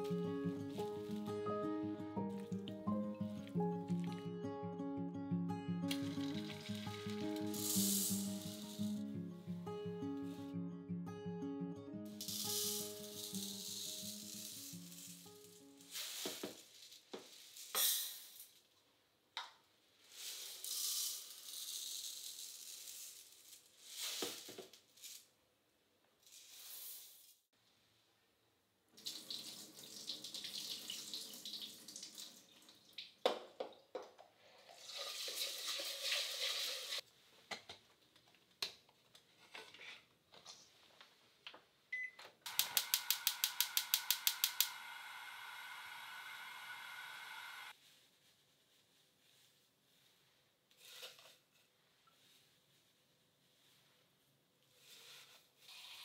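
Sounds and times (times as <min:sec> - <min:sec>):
tap water running into pot: 0:05.9 - 0:08.0, 0:29.0 - 0:33.2, 0:34.6 - 0:37.0
gas igniter clicking: 0:42.5 - 0:44.8
gas burner hissing: 0:42.5 - 0:47.7.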